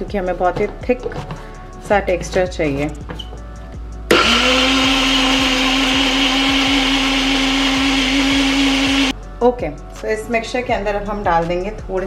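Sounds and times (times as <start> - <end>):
electric mixer grinder motor whining: 4.1 - 9.1.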